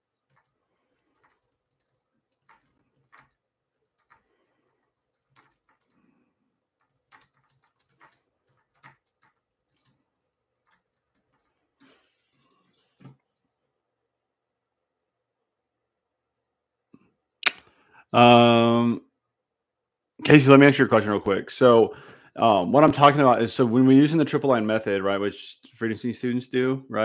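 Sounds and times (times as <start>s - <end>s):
typing on a computer keyboard: 0.2s - 11.9s.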